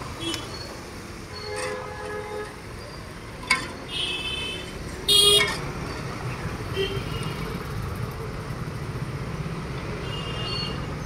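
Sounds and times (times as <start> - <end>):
street traffic noise: 0.0 - 11.0
vehicle horn toots: 3.9 - 5.5.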